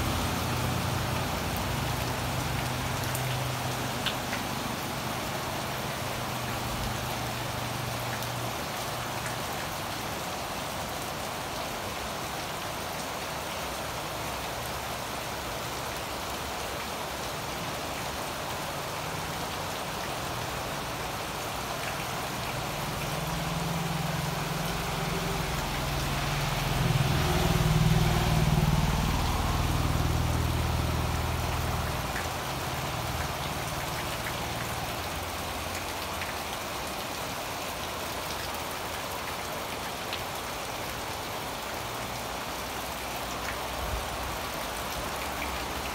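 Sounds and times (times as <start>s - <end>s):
passing vehicle engine hum: 0.0s - 8.4s, 20.6s - 35.7s
heavy rain on leaves: 0.0s - 45.9s.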